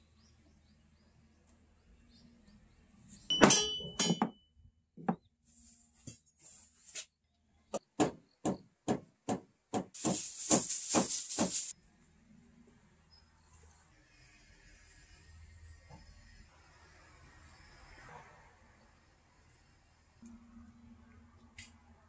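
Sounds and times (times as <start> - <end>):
hand rubbing on boards: 10.0 - 11.7.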